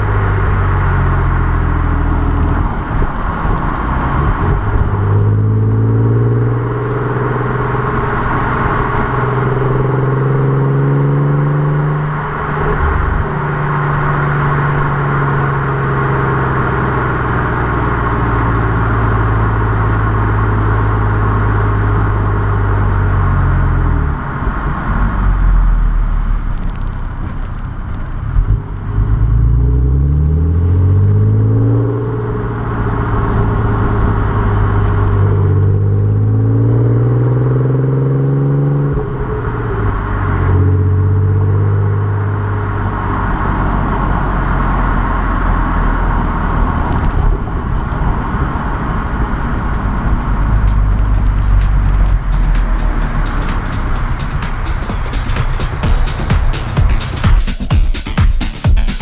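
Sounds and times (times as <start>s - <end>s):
wind noise: 0.0s - 29.4s, 42.5s - 57.4s
car engine and exhaust: 0.0s - 58.9s
tyre noise: 46.5s - 59.0s.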